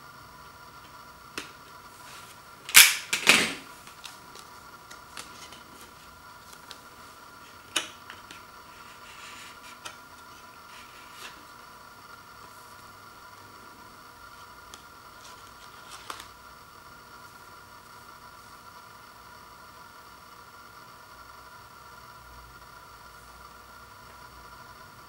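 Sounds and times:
sharp click: 2.7s - 3.5s
paper handling ticks: 3.9s - 6.9s, 14.7s - 16.4s
paper and card ripping: 15.2s - 16.4s.

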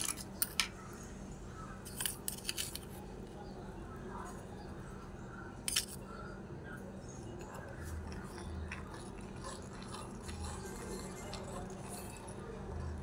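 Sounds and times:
spoon scraping sugar in cup: 7.5s - 13.0s.

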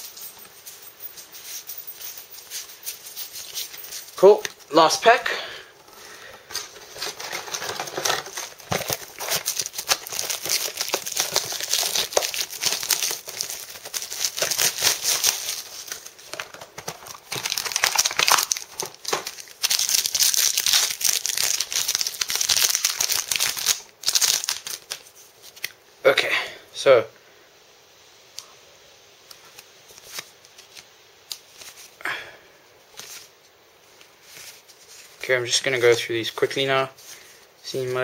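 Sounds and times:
foil wrapper crinkling and tearing: 6.3s - 25.8s, 29.5s - 32.0s.

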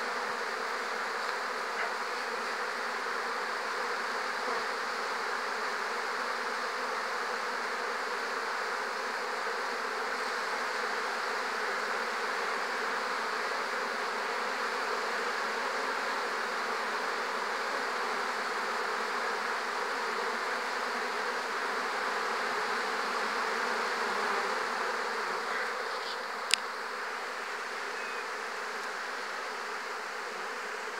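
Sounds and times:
honeybees buzzing: 0.0s - 30.9s.

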